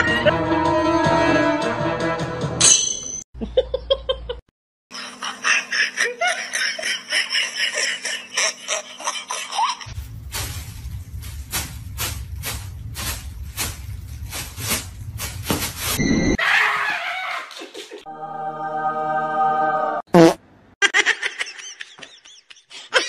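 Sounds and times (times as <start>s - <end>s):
background music: 0.0s - 2.8s, 18.1s - 20.0s
laughter: 3.4s - 9.9s, 16.6s - 18.1s, 20.8s - 23.0s.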